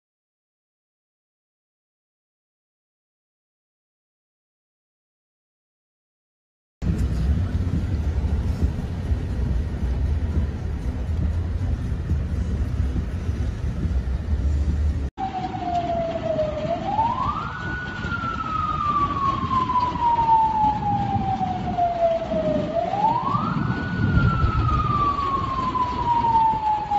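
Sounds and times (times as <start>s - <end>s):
low rumbling noise: 6.8s - 26.9s
siren wailing: 15.2s - 26.9s.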